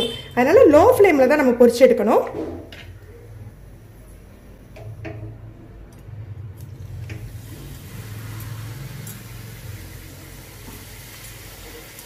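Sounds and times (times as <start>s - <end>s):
oil sizzling and bubbling: 2.7s - 12.0s.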